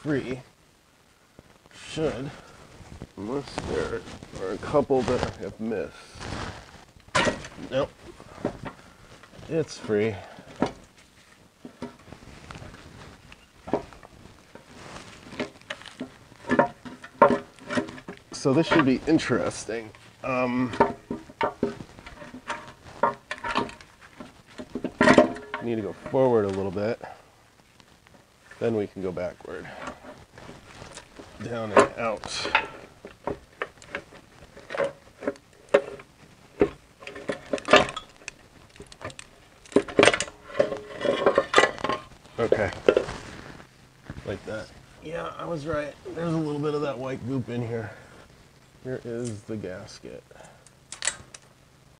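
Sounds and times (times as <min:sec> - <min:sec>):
hands handling car parts: 0:01.9 - 0:27.0, 0:29.5 - 0:44.6
metal clanks and scrapes: 0:31.6 - 0:32.9, 0:39.7 - 0:43.0.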